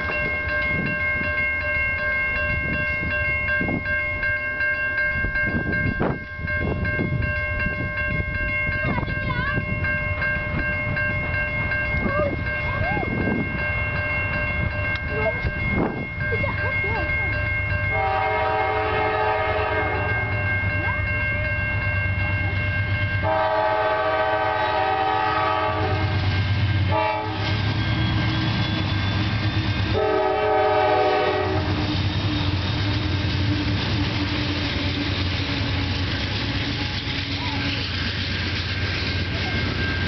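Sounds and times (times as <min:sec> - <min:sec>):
crossing signal bell ringing: 0:00.0 - 0:40.0
train rumbling: 0:00.0 - 0:40.0
locomotive air horn blasts: 0:17.9 - 0:20.3, 0:23.2 - 0:26.3, 0:26.9 - 0:27.6, 0:29.9 - 0:31.9.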